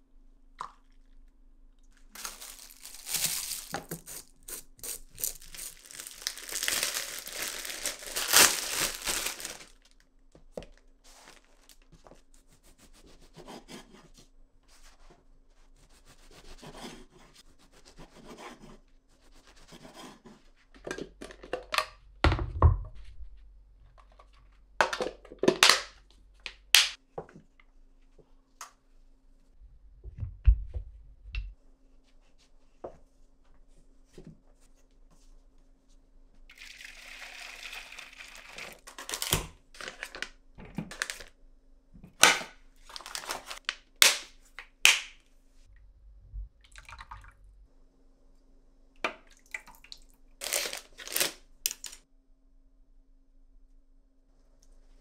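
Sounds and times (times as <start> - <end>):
packaging crinkling and tearing: 2.1 - 10.0, 38.6 - 41.4, 42.2 - 44.3, 50.4 - 52.0.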